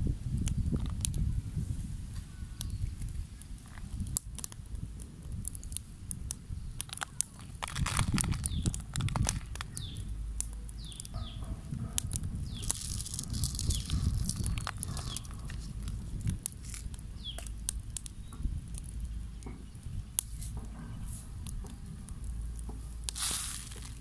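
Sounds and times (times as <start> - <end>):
small birds chirping: 2.1 - 4.5, 5.5 - 24.0
salt grains pattering on fish: 5.3 - 11.2, 12.1 - 18.1, 22.3 - 24.0.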